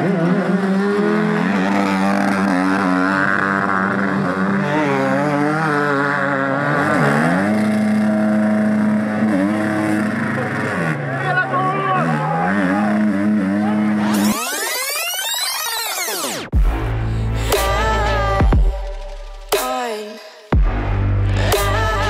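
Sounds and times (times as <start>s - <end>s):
dirt bike engines revving: 0.0s - 19.6s, 20.7s - 22.0s.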